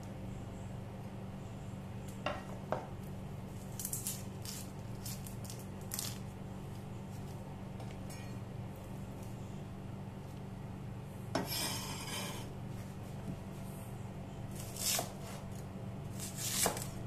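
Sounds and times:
steady low hum: 0.0 - 17.0
onion skin crackling: 3.5 - 7.4.

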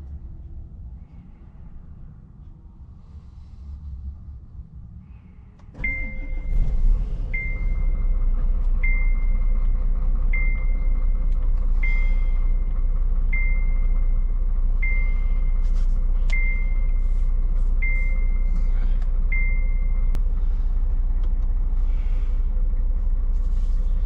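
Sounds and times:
diesel engine starting and idling: 0.0 - 24.0
dashboard warning chime: 5.8 - 6.6, 16.3 - 17.0, 17.8 - 18.6, 19.3 - 20.2.

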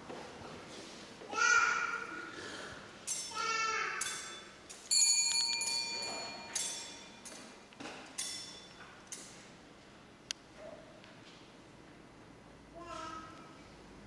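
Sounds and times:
altar bell ringing: 4.0 - 7.4, 8.2 - 8.9.

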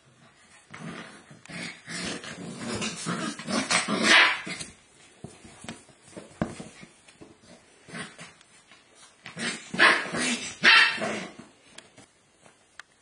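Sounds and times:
puppies growling and yapping: 0.6 - 4.8.

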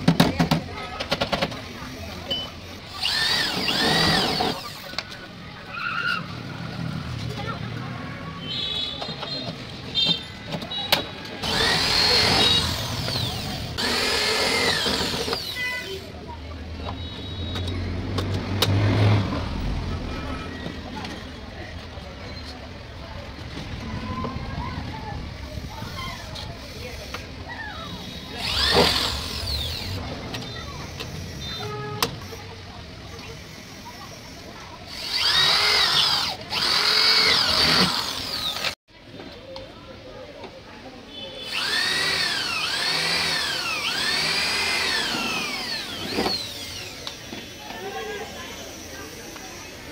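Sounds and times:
electric drill boring metal: 2.9 - 4.9, 11.4 - 16.1, 28.0 - 30.0, 34.9 - 38.8, 41.4 - 49.8.

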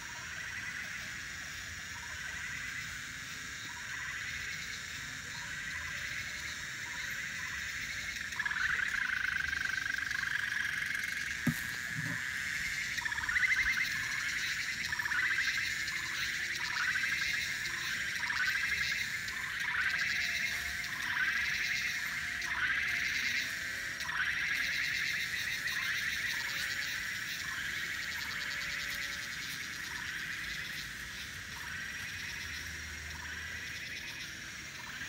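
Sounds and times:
trilling animal calls: 8.4 - 27.0.

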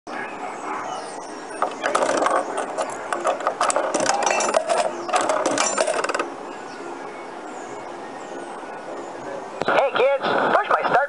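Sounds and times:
coin clicking through coin mechanism: 1.6 - 6.3.

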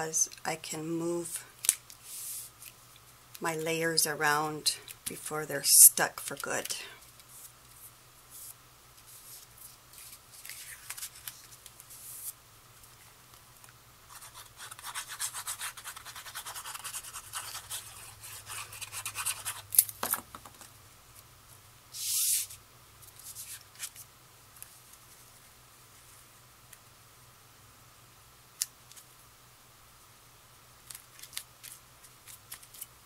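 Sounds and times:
paper scrapes: 22.0 - 22.6
paper sliding: 22.0 - 22.6.

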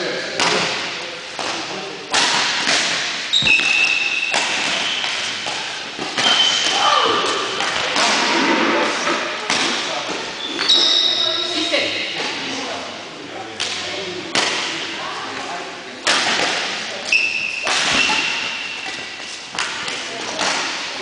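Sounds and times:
racket striking shuttlecock: 1.4 - 8.3, 17.6 - 20.9
shoes squeaking on court floor: 3.3 - 7.6, 10.1 - 12.4, 17.0 - 19.6.

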